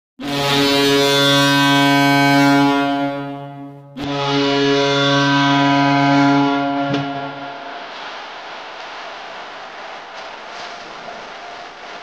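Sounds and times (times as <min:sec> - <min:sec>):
goal horn blasts: 0:00.2 - 0:07.9.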